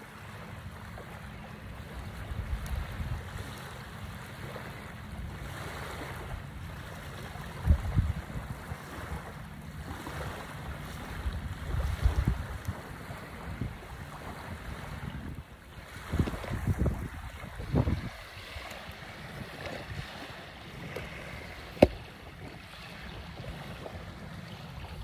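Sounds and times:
small waves washing onto shore: 0:00.0 - 0:25.0
wind buffeting microphone: 0:07.4 - 0:25.0.

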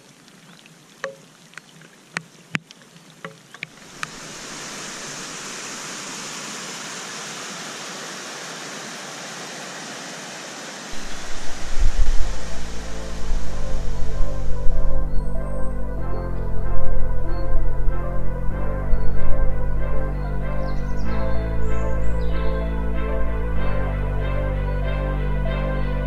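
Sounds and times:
raindrops tapping: 0:00.0 - 0:04.6
stream cascading over rocks: 0:00.0 - 0:15.1
low music: 0:11.0 - 0:26.0.

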